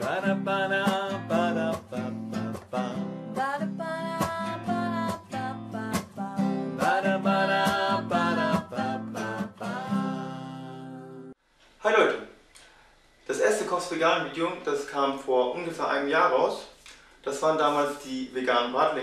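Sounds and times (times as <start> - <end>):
strummed acoustic guitar: 0.0 - 11.3.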